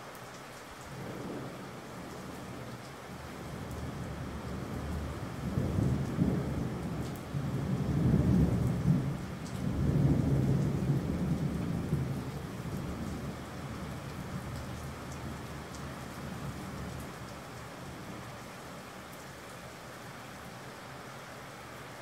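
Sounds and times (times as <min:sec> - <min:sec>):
steady rain hiss: 0:00.0 - 0:22.0
rolling thunder rumbling: 0:03.5 - 0:17.3.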